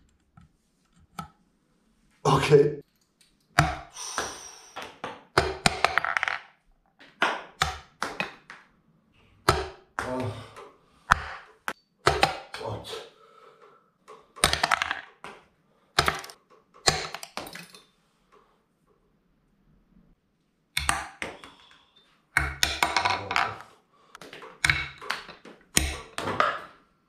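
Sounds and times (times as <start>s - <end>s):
plastic push pins landing: 4.8s - 8.7s, 9.4s - 12.6s, 14.0s - 17.8s, 20.8s - 21.6s, 22.4s - 26.8s.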